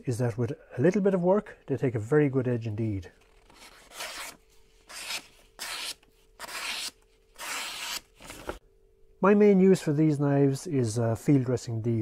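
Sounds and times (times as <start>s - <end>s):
knife slicing through paper: 3.5s - 8.6s.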